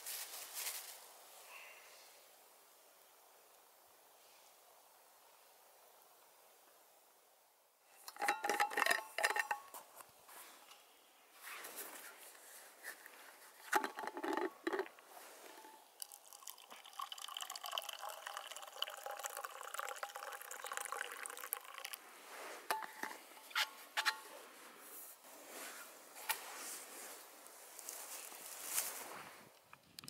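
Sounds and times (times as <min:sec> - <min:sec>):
drink trickling into a steel cup: 0:08.0 - 0:09.7, 0:13.5 - 0:24.4
clicks and knocks of flask handling: 0:08.0 - 0:09.9, 0:13.6 - 0:15.8, 0:22.7 - 0:24.3.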